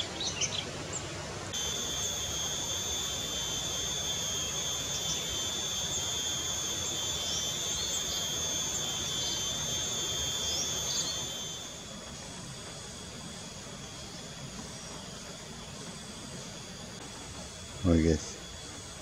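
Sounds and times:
small birds chirping: 0.0s - 12.5s
insect high-pitched whine: 0.0s - 19.0s.

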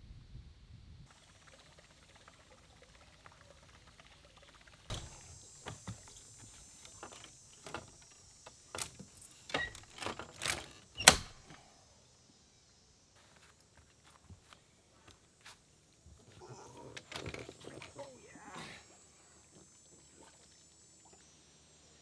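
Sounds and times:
water splashing: 1.1s - 7.3s.

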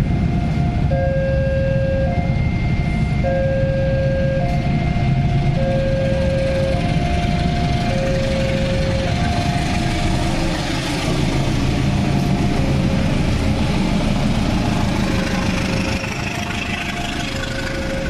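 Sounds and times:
level-crossing alarm two-note tone: 0.0s - 10.9s, 15.9s - 18.0s
carriages rumbling on rails: 0.0s - 18.0s
diesel locomotive passing: 0.0s - 18.0s.

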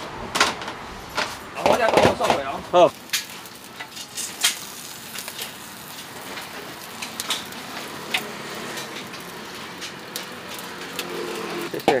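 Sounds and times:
charcoal roaster hissing: 0.0s - 12.0s.

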